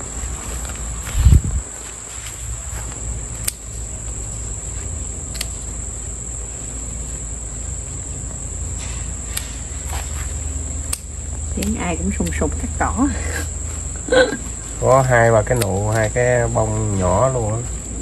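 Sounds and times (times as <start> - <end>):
crickets chirping: 0.0 - 18.0
scissors snipping: 3.4 - 3.7, 5.3 - 5.6, 10.9 - 12.4, 15.5 - 16.1.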